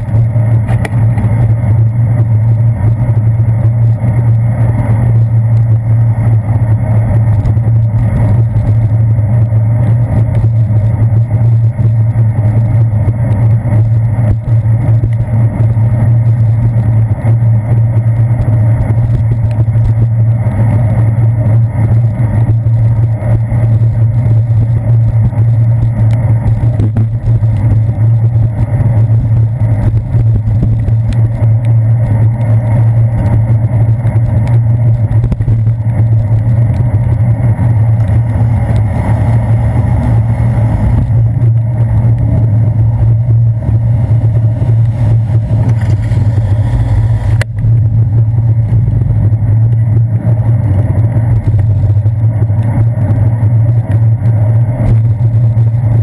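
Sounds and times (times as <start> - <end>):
road vibration: 0.0 - 56.0
wind rumble: 0.0 - 56.0.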